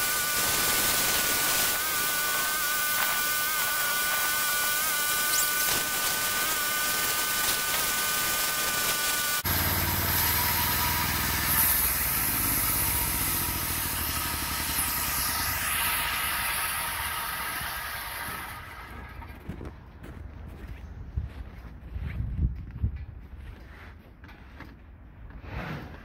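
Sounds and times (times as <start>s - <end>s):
sawmill high whine: 0.0s - 19.6s
engine running with a hiss: 8.6s - 19.2s.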